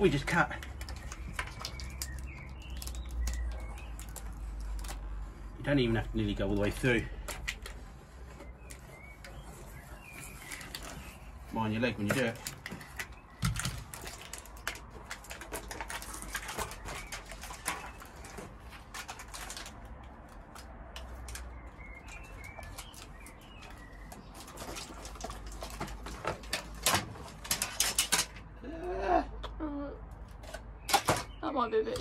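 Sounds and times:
birds calling: 0:00.0 - 0:29.8, 0:30.6 - 0:32.0
knife cutting foil sheet: 0:11.9 - 0:19.8.

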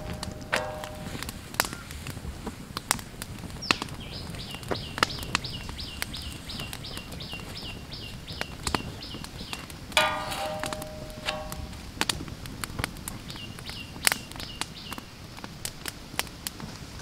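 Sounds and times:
wood fire crackling and popping: 0:00.0 - 0:17.0
bird chirping: 0:03.6 - 0:11.7.

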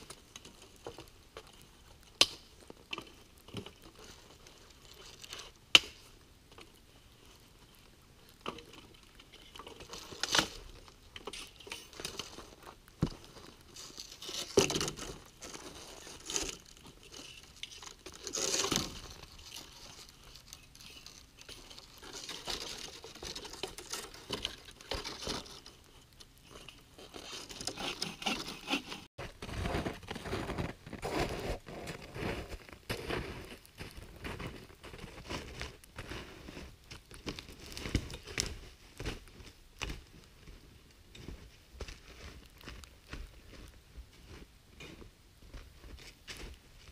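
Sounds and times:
footsteps crunching through snow: 0:29.3 - 0:40.6.

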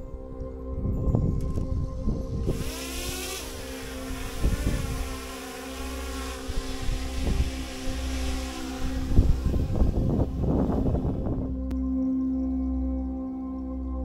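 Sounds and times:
background music tone: 0:00.0 - 0:14.0
wind noise: 0:00.7 - 0:11.7
drone propellers humming: 0:01.3 - 0:11.8.

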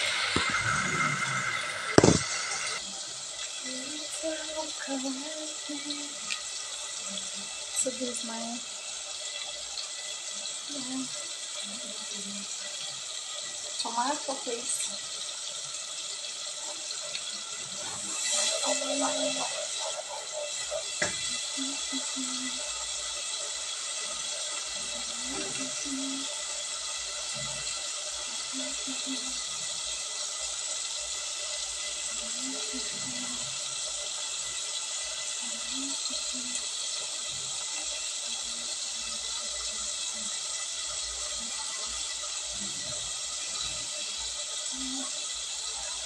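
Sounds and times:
food sizzling in a pot: 0:00.0 - 0:46.0
sharp knock: 0:01.9 - 0:02.5.

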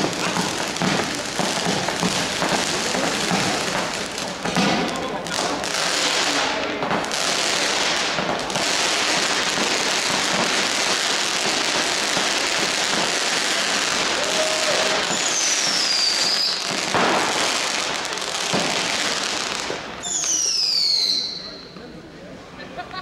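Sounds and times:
firework bang: 0:00.0 - 0:20.7
firework fountain hissing crackle: 0:00.0 - 0:22.0
falling firework whistle: 0:13.9 - 0:17.4, 0:19.6 - 0:21.8.

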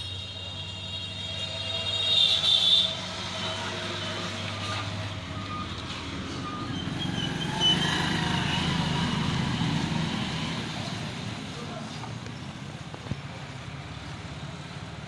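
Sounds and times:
high-pitched squeal: 0:00.0 - 0:10.2
traffic noise: 0:00.0 - 0:15.0
vehicle engine rumbling: 0:00.0 - 0:15.0.

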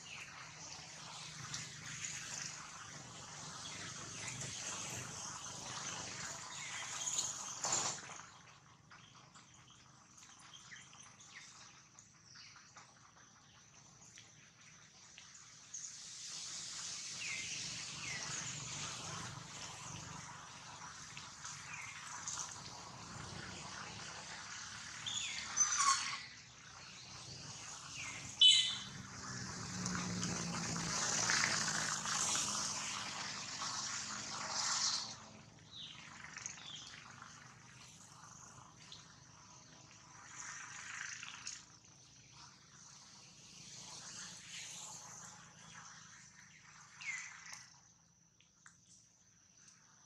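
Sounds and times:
thin steady high tone: 0:28.1 - 0:29.2
baby monkey squealing: 0:28.4 - 0:28.9
faint high calls: 0:28.4 - 0:29.0.

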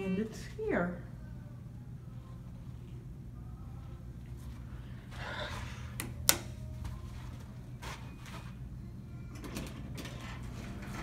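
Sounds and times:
elevator humming: 0:00.0 - 0:11.0.

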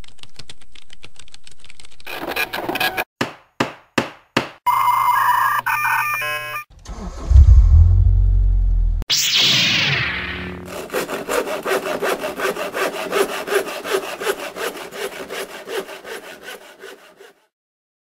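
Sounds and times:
falling swoosh: 0:06.8 - 0:10.0
fast scraping strokes: 0:10.7 - 0:17.5.

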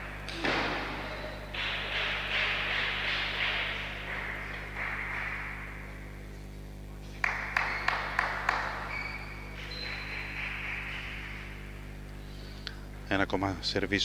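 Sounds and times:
table tennis ball bouncing: 0:00.0 - 0:05.8, 0:07.3 - 0:11.7
background hiss and hum: 0:00.0 - 0:14.0.

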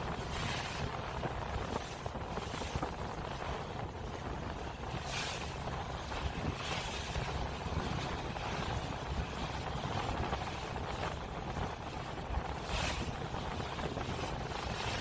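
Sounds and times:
ship engine rumble: 0:00.0 - 0:15.0
wind buffeting microphone: 0:00.0 - 0:15.0.

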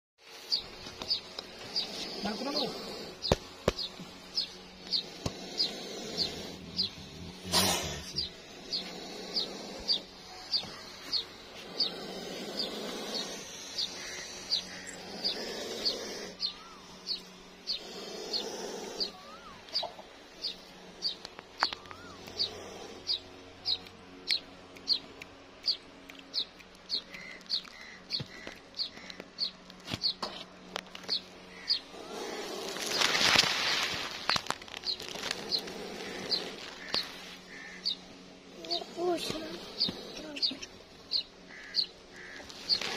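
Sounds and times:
small bird chirping: 0:00.5 - 0:30.3, 0:34.2 - 0:42.9.

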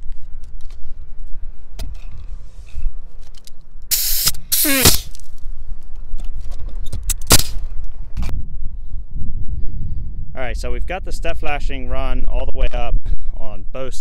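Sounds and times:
pneumatic nailer firing: 0:03.9 - 0:05.2, 0:07.1 - 0:07.6.

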